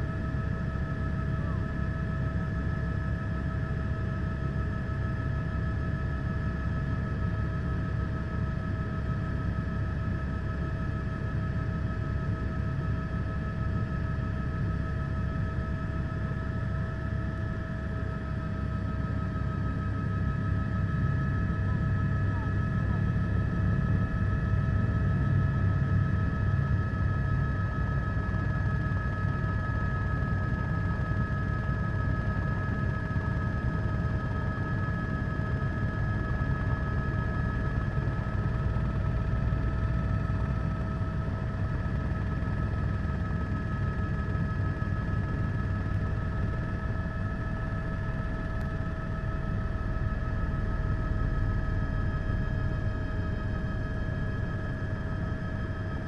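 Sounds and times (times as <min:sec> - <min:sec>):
helicopter rotor rumble: 0:00.0 - 0:56.0.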